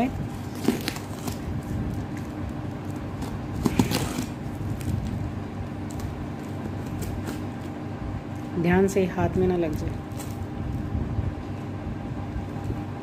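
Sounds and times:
steady low hum: 0:00.0 - 0:13.0
scissors cutting packing tape: 0:00.4 - 0:05.2, 0:05.8 - 0:07.8.

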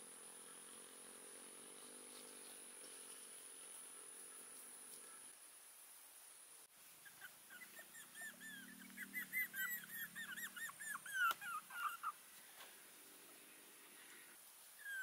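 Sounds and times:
puppies whimpering: 0:07.0 - 0:12.2, 0:14.8 - 0:15.0.

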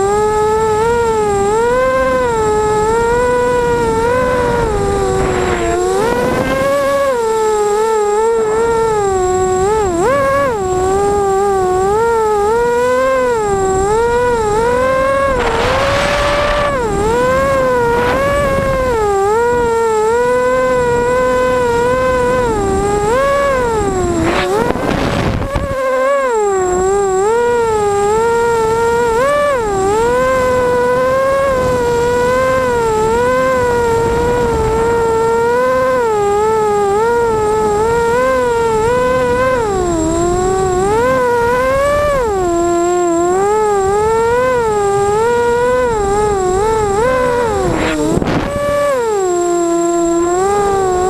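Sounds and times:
quadcopter motors whining: 0:00.0 - 0:51.0
rushing noise: 0:03.6 - 0:07.7, 0:13.7 - 0:19.7.

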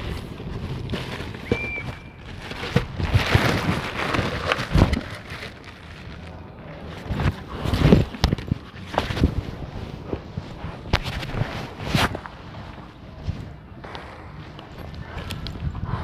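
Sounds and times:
wind on microphone: 0:14.7 - 0:16.0.

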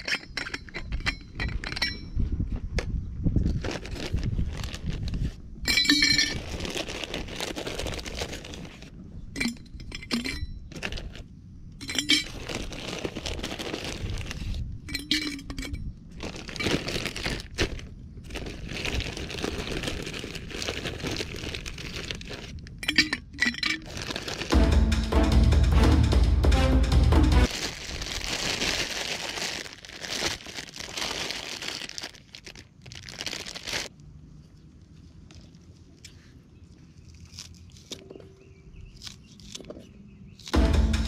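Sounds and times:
ice cubes clinking in metal flask: 0:05.7 - 0:08.2, 0:09.4 - 0:11.2, 0:11.8 - 0:14.2, 0:14.8 - 0:17.6, 0:18.3 - 0:24.6.

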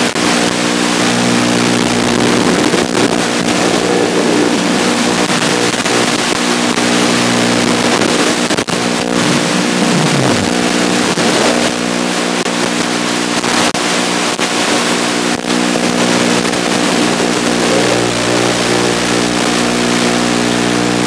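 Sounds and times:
wind and static hiss: 0:00.0 - 0:21.0
drone motors and propellers whining: 0:02.0 - 0:12.3, 0:15.8 - 0:20.0.

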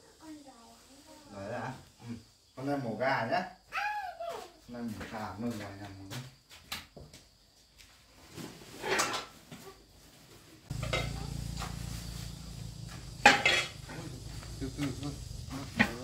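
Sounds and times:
kitchenware clattering: 0:10.7 - 0:11.5, 0:13.2 - 0:13.9
steady low hum: 0:10.7 - 0:16.0
loud metal clank: 0:13.1 - 0:14.0.

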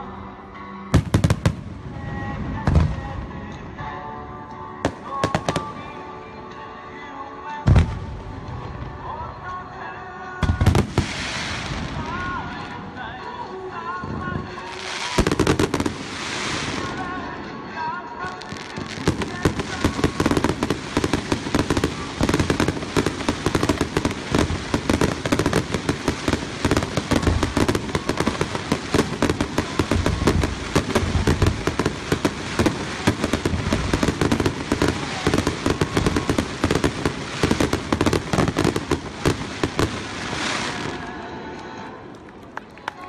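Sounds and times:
fireworks crackling: 0:04.9 - 0:06.6, 0:10.4 - 0:41.7
fireworks bangs: 0:10.4 - 0:13.2, 0:14.1 - 0:17.4, 0:18.4 - 0:41.2.

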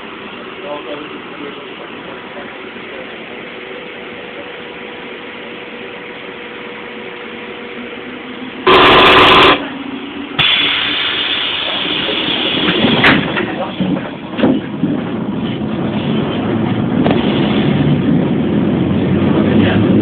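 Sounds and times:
train running hum: 0:00.0 - 0:20.0
very loud blast: 0:08.6 - 0:09.6.

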